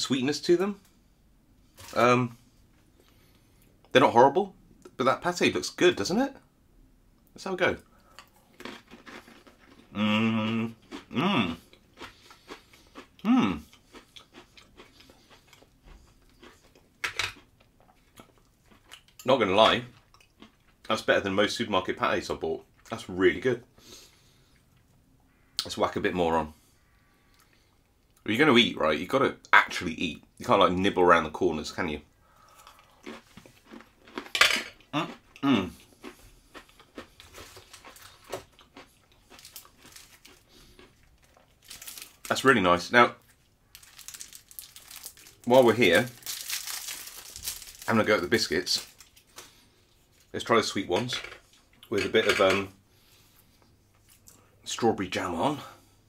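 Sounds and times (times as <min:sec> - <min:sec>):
person chewing and crunching: 0:08.0 - 0:20.8, 0:32.4 - 0:42.4, 0:43.2 - 0:50.3
hummed mm: 0:10.0 - 0:11.6.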